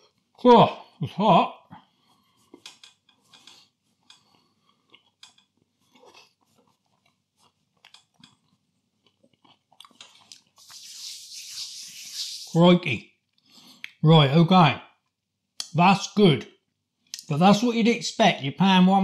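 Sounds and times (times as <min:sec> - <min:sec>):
chewing flaky pastry: 0:01.8 - 0:11.4.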